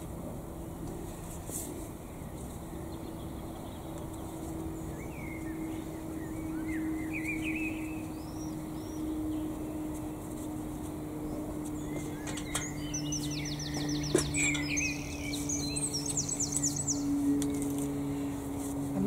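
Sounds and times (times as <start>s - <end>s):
steady low hum: 0.0s - 19.0s
bird twittering: 4.8s - 9.7s, 11.3s - 18.4s.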